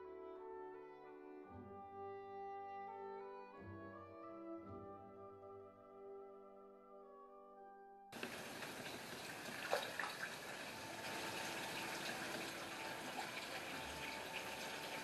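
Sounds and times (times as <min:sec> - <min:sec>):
music: 0:00.0 - 0:15.0
fish feeding at surface: 0:08.2 - 0:15.0
pond water trickling: 0:08.2 - 0:15.0.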